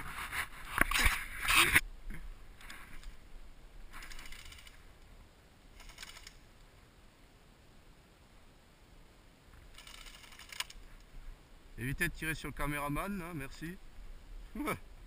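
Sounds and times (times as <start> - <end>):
rustle and clatter of gear: 0.0 - 3.2, 3.8 - 5.1, 5.7 - 6.7, 9.5 - 11.2
airsoft gun bursts: 5.8 - 6.4.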